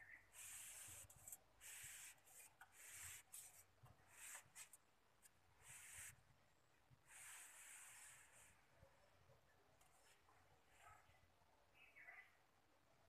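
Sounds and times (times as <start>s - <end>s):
faint rubbing hiss: 0.3s - 4.8s, 5.6s - 6.3s, 7.0s - 8.9s.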